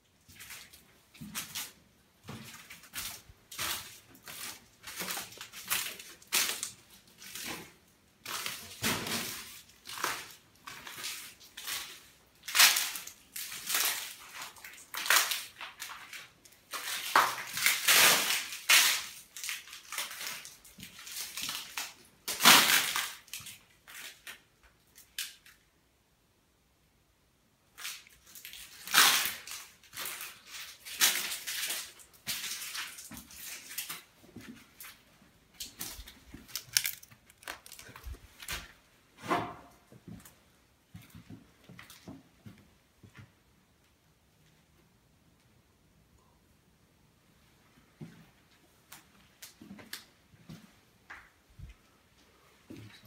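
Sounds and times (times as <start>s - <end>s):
footsteps crunching on paint flakes: 0.3s - 17.8s.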